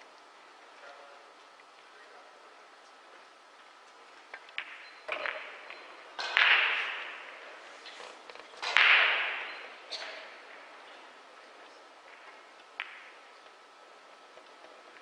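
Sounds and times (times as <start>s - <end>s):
pool balls clicking: 3.6s - 15.0s
ball dropping into pocket: 4.3s - 10.8s, 12.1s - 13.6s.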